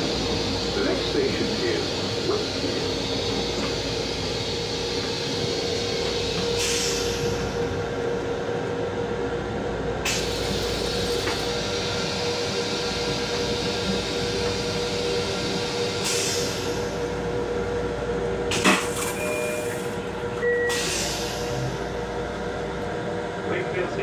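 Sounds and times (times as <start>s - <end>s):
electric railcar running noise: 0.0s - 24.0s
hiss: 5.1s - 7.4s, 16.0s - 16.7s.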